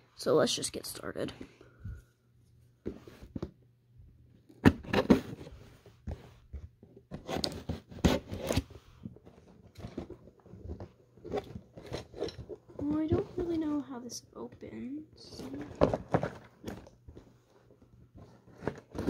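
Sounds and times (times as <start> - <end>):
hands handling cardboard box: 4.4 - 13.8, 15.2 - 19.0.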